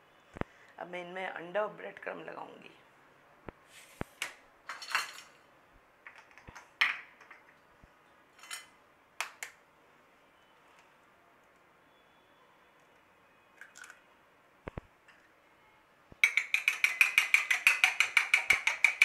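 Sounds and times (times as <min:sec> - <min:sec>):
dishes clinking and knocking: 0:04.7 - 0:05.3, 0:16.2 - 0:19.0.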